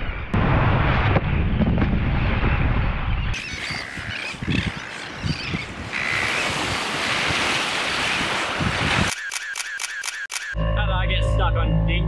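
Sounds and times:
wind buffeting microphone: 0.4s - 9.1s
sea waves washing: 5.0s - 9.6s.

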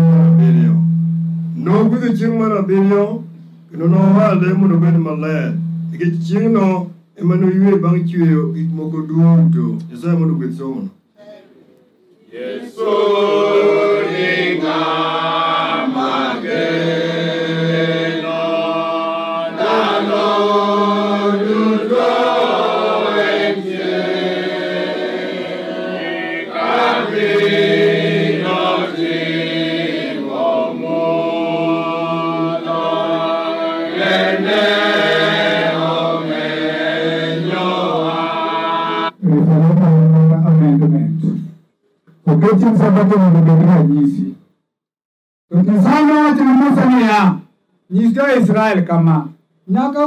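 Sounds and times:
group singing a hymn: 12.2s - 39.2s.

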